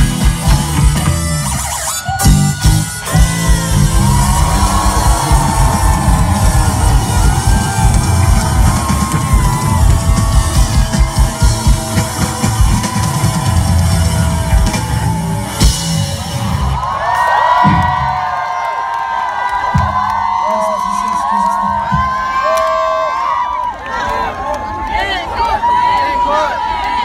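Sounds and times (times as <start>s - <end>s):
rock band playing live: 0.0s - 18.2s
drum kit pounding: 0.0s - 18.3s, 19.6s - 20.2s
voices shouting: 0.5s - 15.7s.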